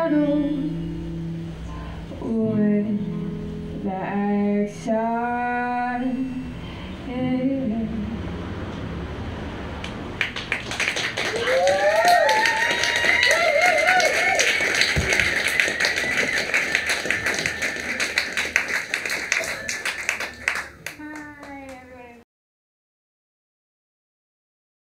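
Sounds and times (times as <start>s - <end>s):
audience applauding: 9.8s - 22.0s
voices calling out: 11.0s - 22.2s.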